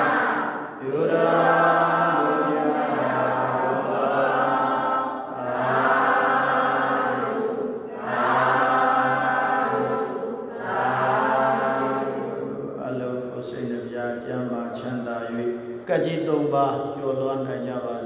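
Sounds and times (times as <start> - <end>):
man chanting low: 10.8 - 18.0.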